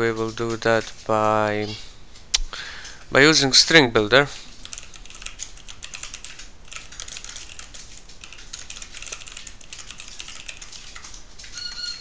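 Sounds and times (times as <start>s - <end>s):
typing on computer keyboard: 4.5s - 12.0s.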